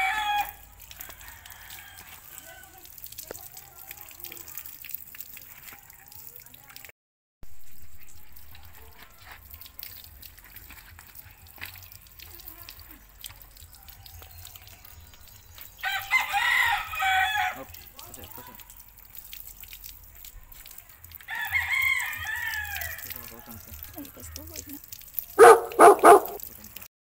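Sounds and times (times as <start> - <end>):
rooster crowing: 0.0 - 2.7, 15.8 - 17.6, 21.3 - 23.1
hose water splashing on concrete: 0.0 - 26.9.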